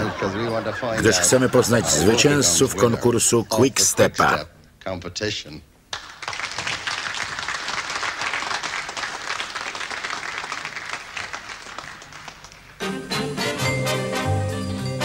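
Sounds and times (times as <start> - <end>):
audience applauding: 5.9 - 12.8
swing dance tune: 12.8 - 15.0.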